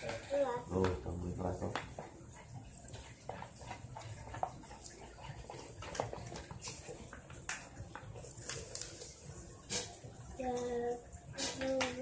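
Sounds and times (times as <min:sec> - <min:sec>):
dough squishing: 0:00.0 - 0:10.3
spoon stirring in bowl: 0:01.6 - 0:10.3.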